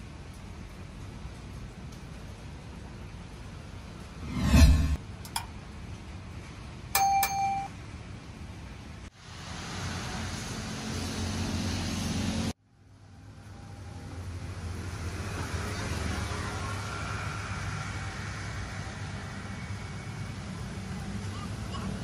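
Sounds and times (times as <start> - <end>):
street traffic: 0.0 - 22.0
loud low rumble: 4.1 - 5.0
short bell-like ding: 7.0 - 7.7.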